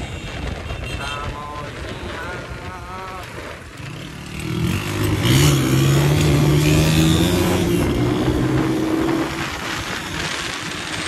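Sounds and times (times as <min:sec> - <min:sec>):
motorcycle engine revving: 0:03.5 - 0:11.0.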